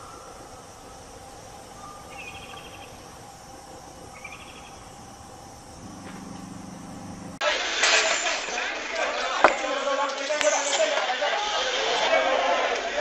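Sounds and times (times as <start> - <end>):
low hum: 0.0 - 7.4
insects hissing: 0.0 - 8.7, 9.7 - 12.3.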